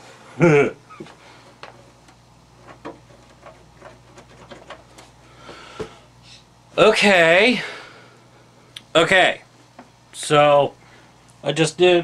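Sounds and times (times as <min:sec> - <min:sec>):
person murmuring: 0:00.4 - 0:01.1
hardware and cables clicking: 0:01.0 - 0:05.2.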